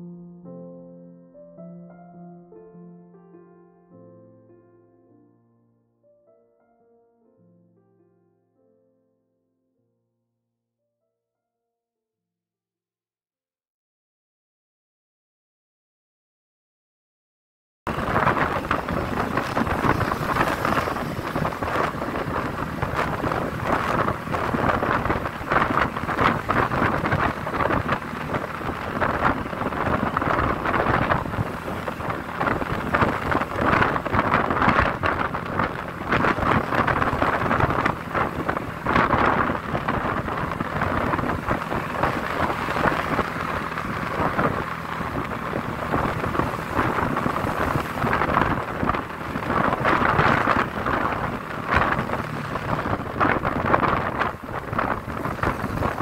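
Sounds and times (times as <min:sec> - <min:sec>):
low motorbike engine hum: 0:17.9 - 0:56.0
wind buffeting microphone: 0:17.9 - 0:56.0.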